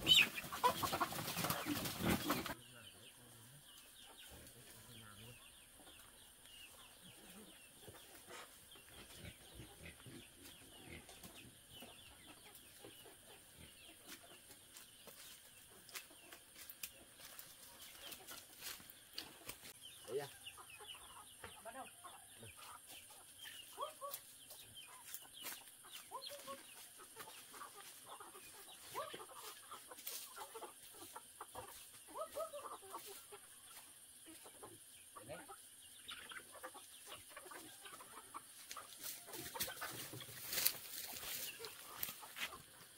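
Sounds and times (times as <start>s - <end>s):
chickens clucking: 0.0s - 42.9s.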